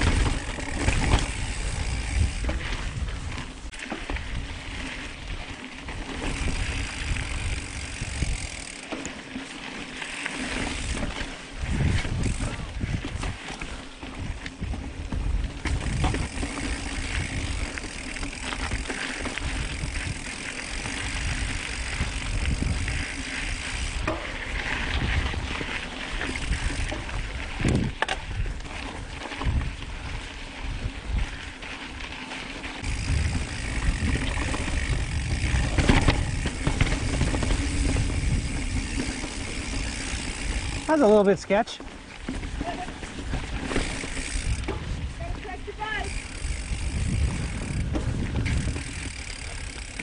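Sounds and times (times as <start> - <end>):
bike rattling: 0.0 - 50.0
bike tyres over rock and dirt: 0.0 - 50.0
bike knocking on rocks: 14.2 - 22.8, 32.8 - 40.9, 41.8 - 45.5.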